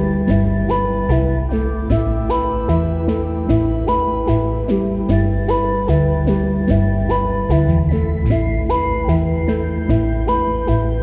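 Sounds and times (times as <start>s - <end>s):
calm instrumental music: 0.0s - 11.0s.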